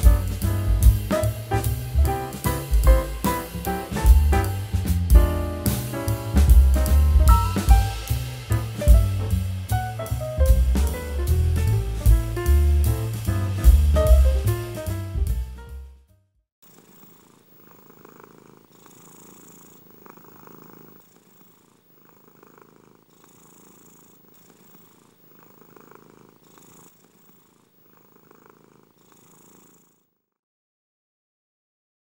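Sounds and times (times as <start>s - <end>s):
cat purring: 0.0s - 10.1s, 16.6s - 30.4s.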